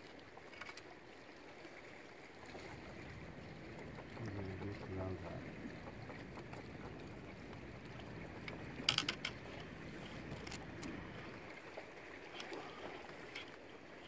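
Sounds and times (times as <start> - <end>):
water washing against hull: 0.0 - 14.0
faint clicks: 3.7 - 11.3.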